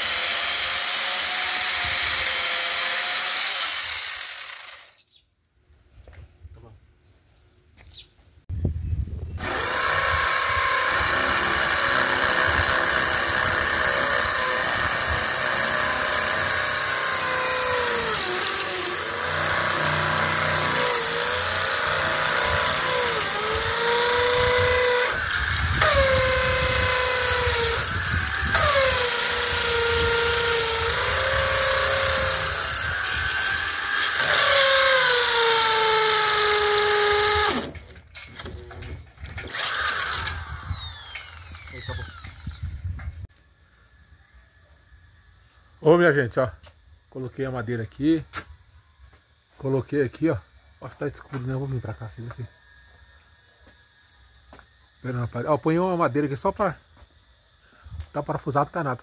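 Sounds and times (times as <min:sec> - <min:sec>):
electric drill whining: 0:00.0 - 0:05.0, 0:09.4 - 0:37.8, 0:39.4 - 0:42.8.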